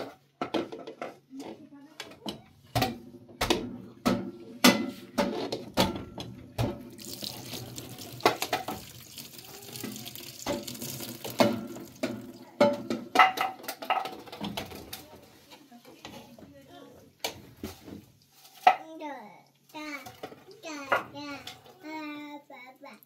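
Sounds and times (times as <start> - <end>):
pots and dishes clattering: 0.0 - 15.3, 17.2 - 18.9, 19.9 - 21.9
liquid running: 6.6 - 12.7.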